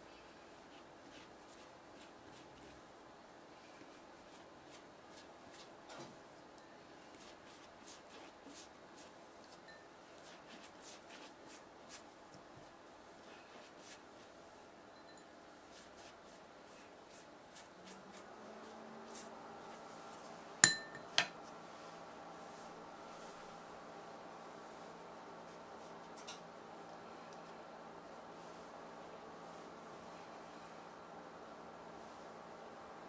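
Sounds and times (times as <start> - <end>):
low steady hum: 0.0 - 33.0
pastry brush tapping and brushing: 0.7 - 2.8, 3.7 - 21.4.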